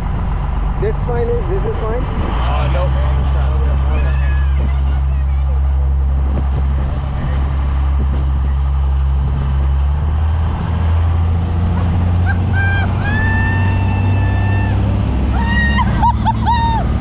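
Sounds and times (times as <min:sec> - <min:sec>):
motorboat engine droning: 0:00.0 - 0:17.0
high drawn-out calls: 0:12.2 - 0:16.9.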